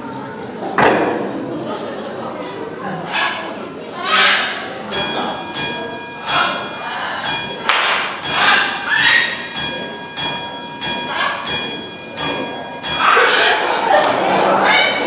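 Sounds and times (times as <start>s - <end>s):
small bell ringing: 4.9s - 14.0s.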